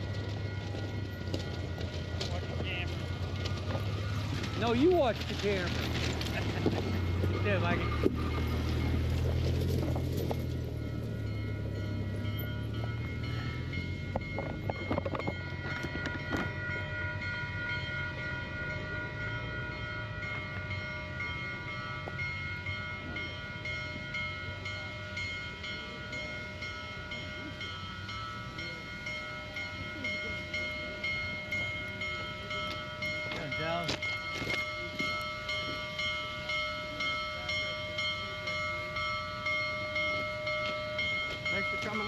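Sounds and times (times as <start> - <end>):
steam locomotive bell ringing: 0.0 - 42.0
crowd chatter: 20.8 - 41.8.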